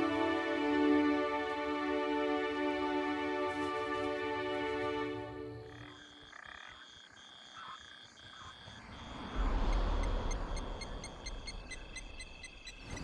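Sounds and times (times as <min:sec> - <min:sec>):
frogs trilling: 0:05.5 - 0:13.0
quick ticking frog calls: 0:05.6 - 0:13.0
low rumble: 0:08.8 - 0:12.6.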